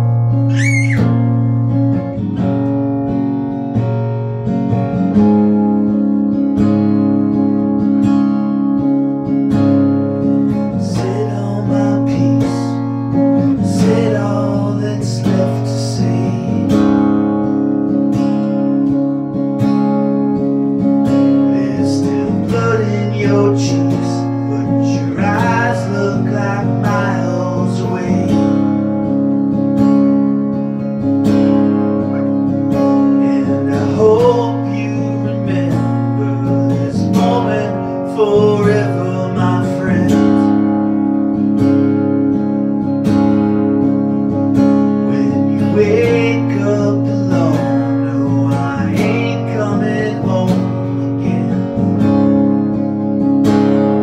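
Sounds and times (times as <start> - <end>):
acoustic guitar strumming: 0.0 - 54.0
man singing: 10.7 - 16.9, 21.4 - 28.7, 32.0 - 40.7, 45.0 - 52.0.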